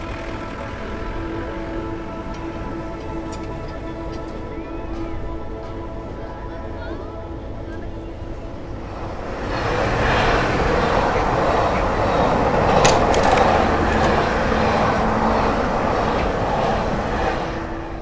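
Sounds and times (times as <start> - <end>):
train rumbling on tracks: 0.0 - 18.0.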